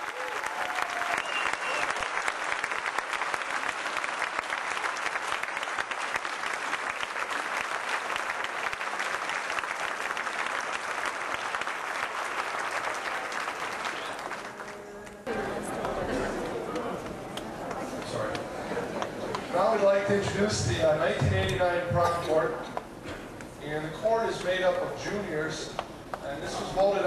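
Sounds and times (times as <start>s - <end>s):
crowd applauding: 0.0s - 20.4s.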